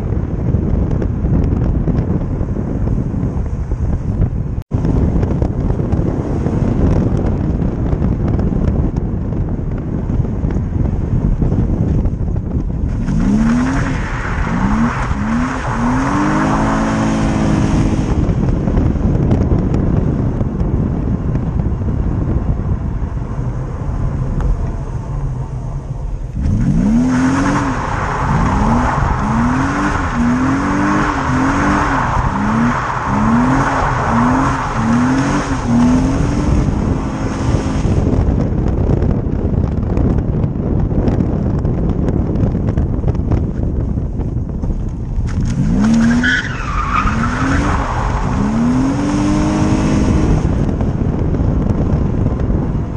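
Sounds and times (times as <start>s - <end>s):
car engine revving hard: 12.9s - 18.8s, 26.3s - 38.4s, 45.4s - 50.9s.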